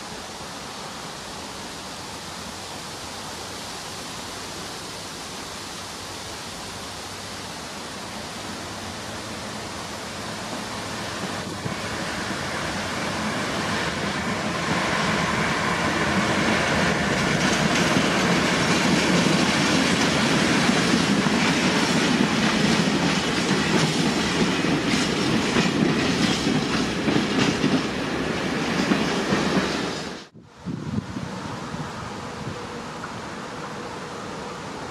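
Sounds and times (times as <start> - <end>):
diesel locomotive engine: 5.6 - 34.9.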